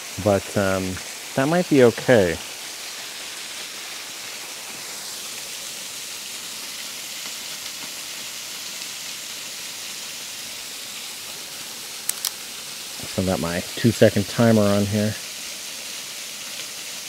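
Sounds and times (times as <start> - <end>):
waterfall splashing onto rock: 0.0 - 17.0.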